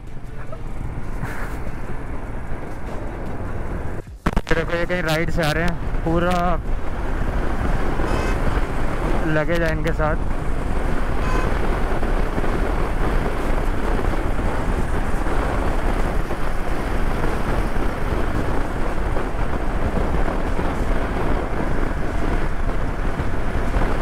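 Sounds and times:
wind rushing over microphone: 0.0s - 24.0s
motorcycle engine: 10.2s - 24.0s.

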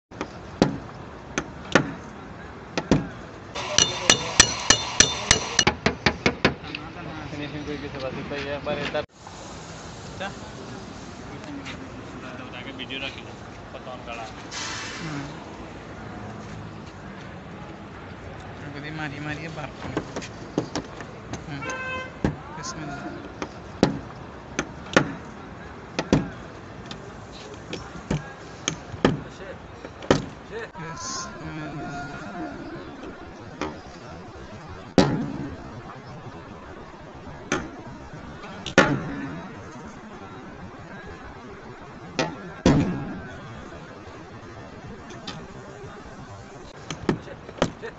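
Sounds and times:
mallet tapping metal punch: 3.6s - 6.1s.

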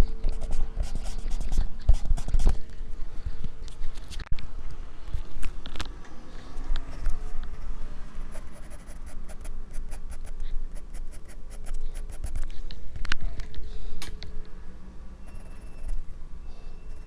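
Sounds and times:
pencil scratching on paper: 0.3s - 2.6s, 8.2s - 12.5s.

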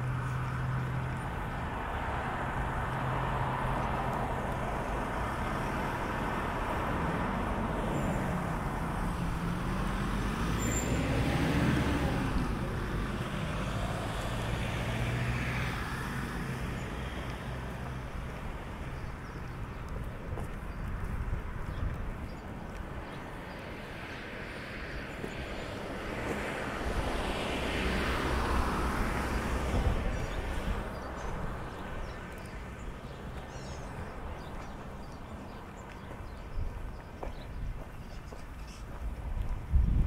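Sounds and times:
vehicle driving past: 9.0s - 17.6s.

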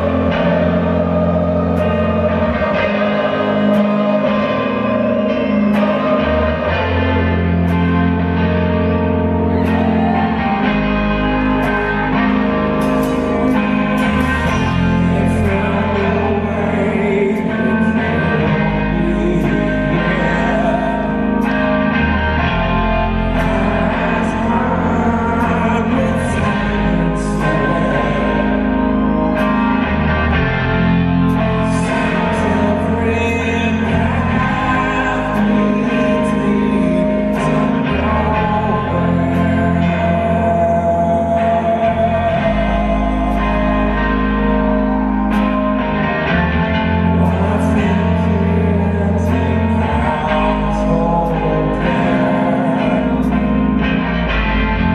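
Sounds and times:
live rock band: 0.0s - 54.9s
loud electric guitar: 0.0s - 54.9s
man singing: 9.5s - 29.4s, 31.4s - 44.8s, 46.8s - 54.3s.

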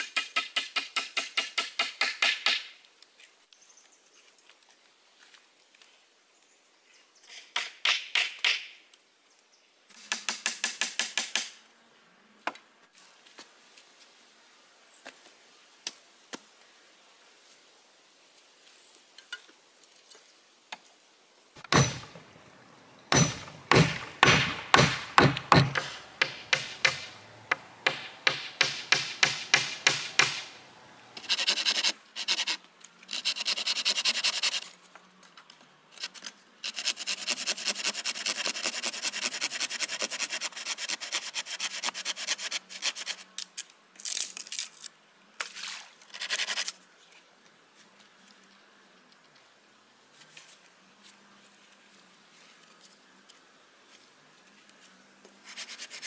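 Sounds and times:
loud knock on wood: 21.6s - 22.2s, 23.1s - 30.4s
chopping strikes on wood: 21.6s - 22.3s, 23.1s - 30.5s
rasping scraping strokes: 31.2s - 34.8s, 55.4s - 56.0s.

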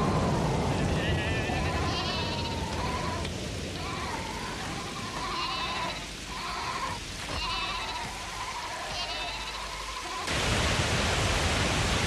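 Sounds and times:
steady background hiss: 0.0s - 12.0s
sheep bleating: 1.0s - 10.2s.

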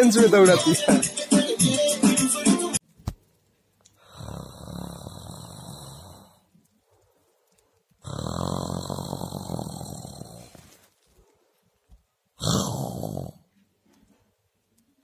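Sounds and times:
puppy snoring: 4.0s - 7.1s, 8.0s - 10.8s, 12.4s - 13.5s.

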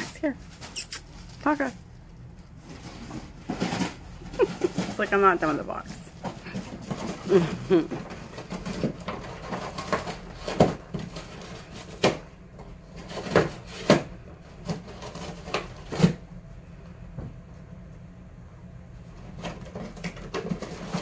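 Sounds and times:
dog tearing cardboard: 2.6s - 5.2s, 6.2s - 16.2s, 19.2s - 21.0s.

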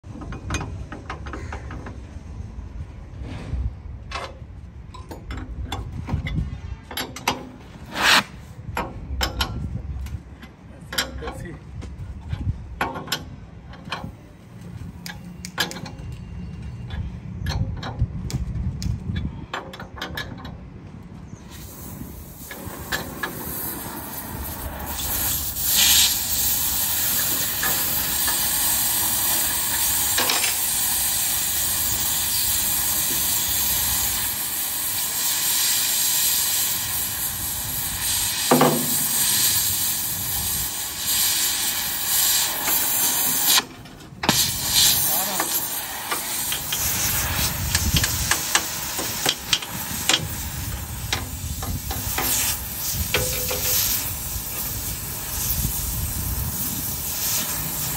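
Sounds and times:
loud steady hiss: 21.4s - 57.9s.

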